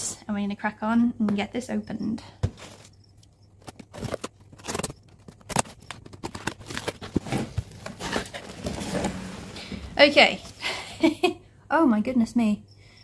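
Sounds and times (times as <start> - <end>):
cardboard box being opened: 3.8 - 10.6.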